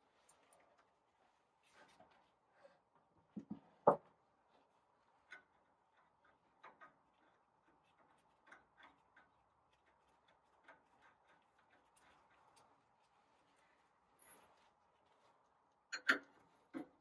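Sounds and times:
light ticks and taps: 5.2 - 12.7
tools knocking and clicking: 15.9 - 17.0.

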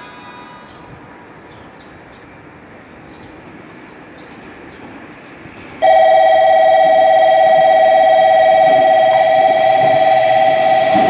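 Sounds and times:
electronic two-tone alarm: 5.8 - 11.0.

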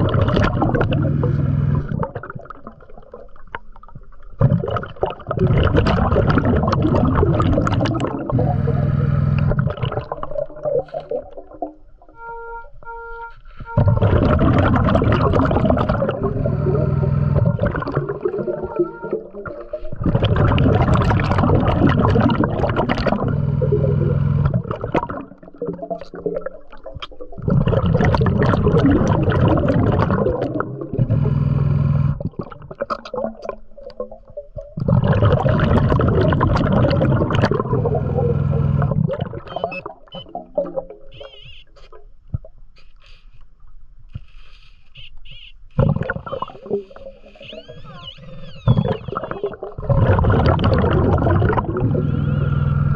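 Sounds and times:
bubbling regulator exhales: 0.0 - 3.4, 4.4 - 12.1, 13.7 - 41.5, 45.8 - 52.9
beeping tones: 12.1 - 14.3, 16.3 - 19.9, 39.5 - 40.4, 41.1 - 41.7.

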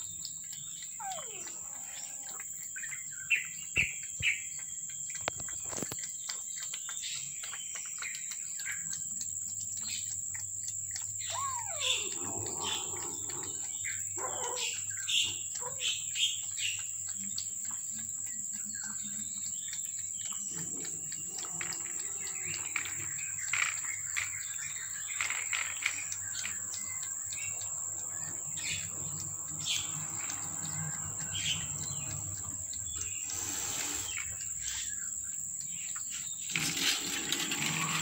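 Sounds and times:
birds chirping: 0.0 - 16.9, 18.2 - 38.0.

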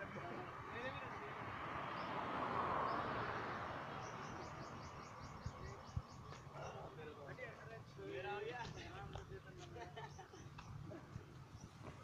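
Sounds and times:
car passing on road: 0.0 - 7.2
bird chirping: 3.8 - 6.9, 10.0 - 12.0.

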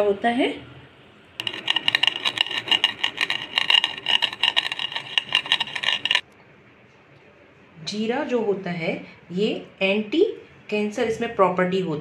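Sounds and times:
rolling pin crushing seeds: 1.4 - 6.2.

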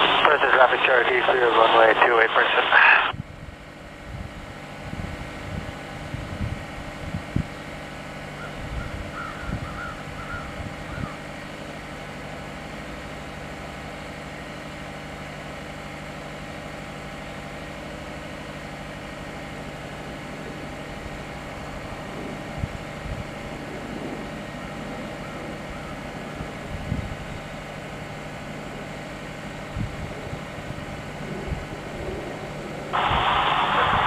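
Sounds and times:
steady engine drone: 0.0 - 34.0
wind buffeting microphone: 3.1 - 7.6, 8.4 - 11.2, 21.8 - 24.4, 25.2 - 27.5, 29.7 - 34.0.

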